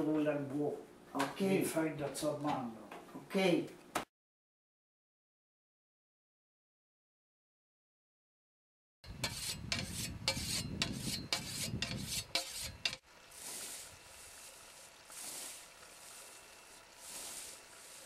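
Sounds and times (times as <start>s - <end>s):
sharpening stone scraping scythe blade: 9.2s - 13.9s
scythe swishing through grass: 9.3s - 18.0s.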